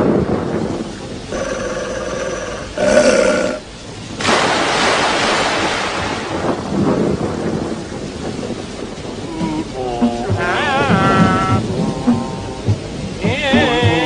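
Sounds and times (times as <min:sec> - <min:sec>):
cartoon thunderclap with rumbling hiss: 0:00.0 - 0:14.0
cartoon yelp: 0:10.1 - 0:11.6.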